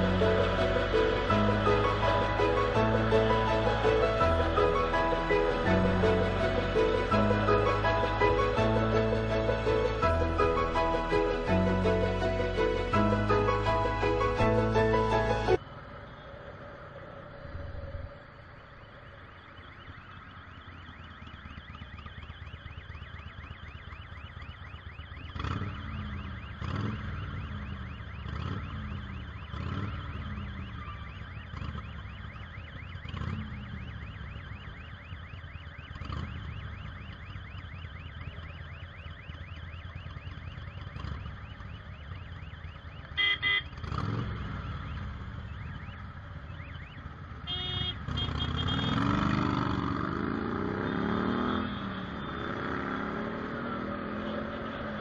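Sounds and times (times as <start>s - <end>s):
motorcycle engines idling: 18.7s - 53.2s
motorcycle engines revving: 19.2s - 55.0s
horn beeps: 43.0s - 55.0s.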